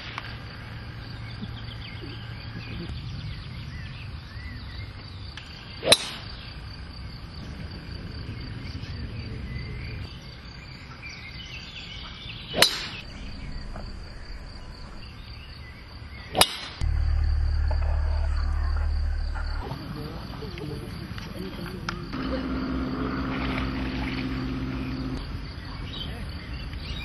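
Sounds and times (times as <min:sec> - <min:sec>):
crickets trilling: 0:00.0 - 0:27.0
low rumble: 0:00.4 - 0:05.3, 0:12.9 - 0:21.3, 0:22.1 - 0:25.3
sharp cracks: 0:05.3 - 0:06.4, 0:12.6 - 0:19.9.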